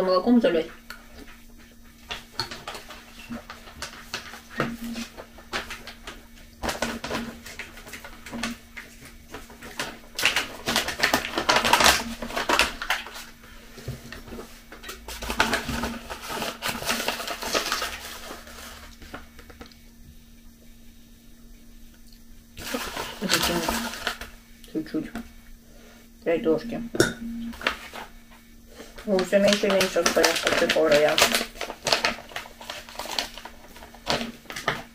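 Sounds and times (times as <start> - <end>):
packet rustling and crinkling: 2.1 - 19.7, 22.6 - 24.4, 27.5 - 28.2, 28.8 - 34.9.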